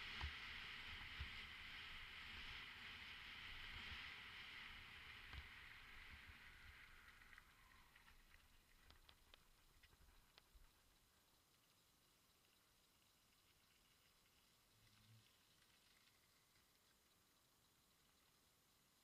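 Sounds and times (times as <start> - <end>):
bicycle tyres hissing: 0.0 - 9.8
wind: 0.0 - 19.0
faint clicks: 6.4 - 19.0.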